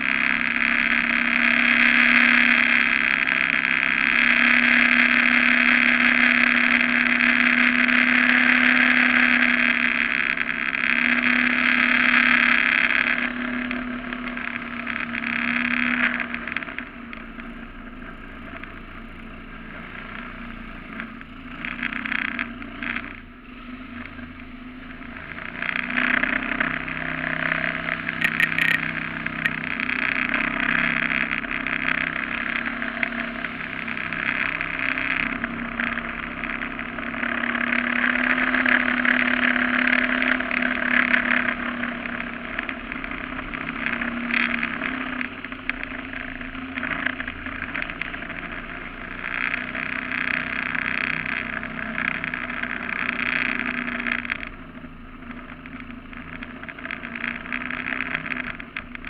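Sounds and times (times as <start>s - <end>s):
boat motor running: 23.9s - 35.4s.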